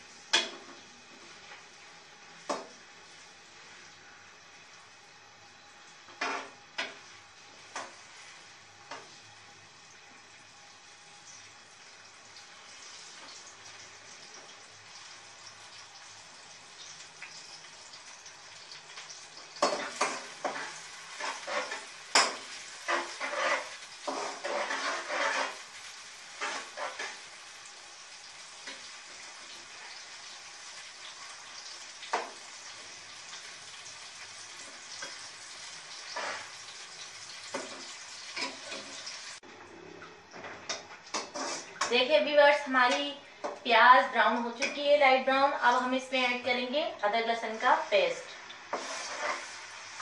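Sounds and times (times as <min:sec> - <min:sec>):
onions sizzling in hot oil: 0:00.0 - 0:39.4, 0:40.6 - 0:50.0
spatula scraping pot: 0:19.6 - 0:27.3, 0:35.9 - 0:36.7, 0:40.7 - 0:41.9, 0:48.7 - 0:50.0.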